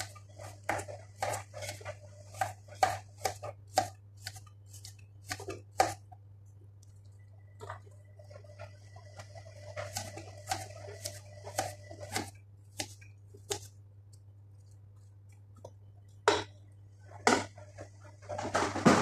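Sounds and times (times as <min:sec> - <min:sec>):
knife cutting on plastic board: 0:00.0 - 0:06.0, 0:09.8 - 0:13.7.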